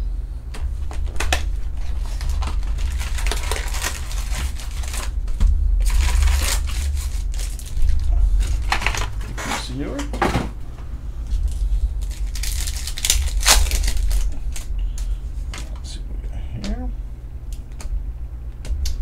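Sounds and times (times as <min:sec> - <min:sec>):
steady low hum: 0:00.0 - 0:19.0
foil wrappers crinkling and clicking: 0:00.6 - 0:09.7, 0:11.3 - 0:15.9.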